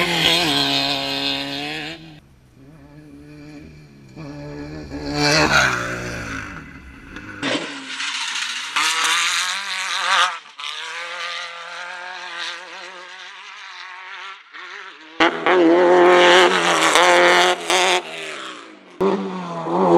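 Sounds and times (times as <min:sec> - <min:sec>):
race buggy engine revving: 0:00.0 - 0:19.9
race car engine passing: 0:00.0 - 0:19.9.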